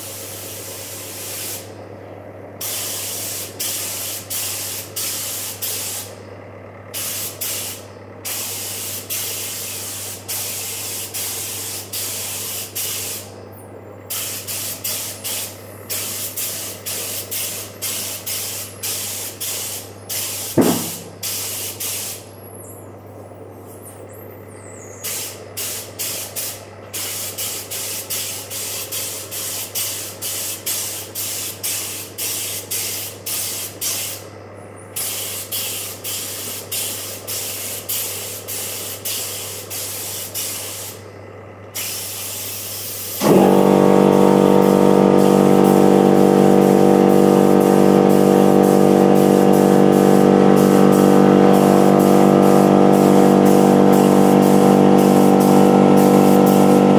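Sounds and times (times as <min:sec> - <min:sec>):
paint spray gun hissing: 0:00.0 - 0:01.7, 0:02.6 - 0:06.2, 0:06.9 - 0:13.3, 0:14.1 - 0:22.2, 0:25.0 - 0:34.3, 0:35.0 - 0:41.0, 0:41.8 - 0:56.9
loud pitched sound: 0:43.2 - 0:56.9.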